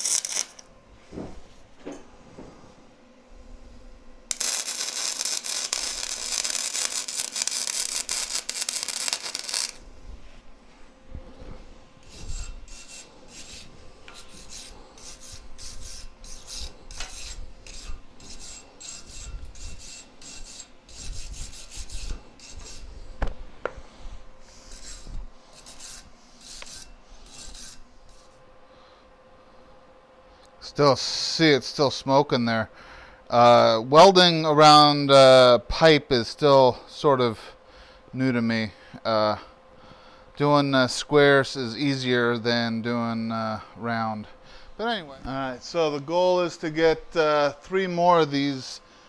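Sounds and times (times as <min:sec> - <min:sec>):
wire brush scrubbing steel: 0:00.0 - 0:00.6, 0:04.3 - 0:09.8, 0:12.0 - 0:22.9, 0:24.4 - 0:28.4
arc welding crackle: 0:00.0 - 0:00.8, 0:04.2 - 0:10.6, 0:11.3 - 0:28.4.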